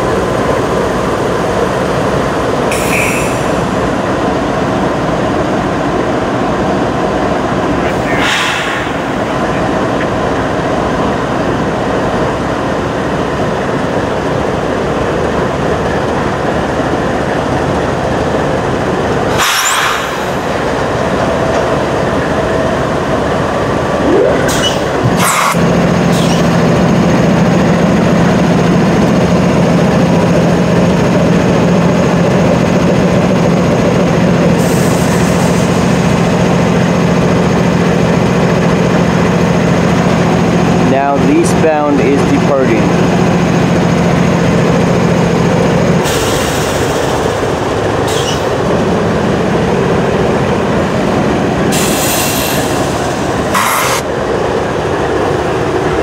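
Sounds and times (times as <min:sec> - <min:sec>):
deep diesel engine hum: 0:00.0 - 0:19.4
freight train rolling past: 0:00.0 - 0:56.0
rail rumble: 0:00.0 - 0:56.0.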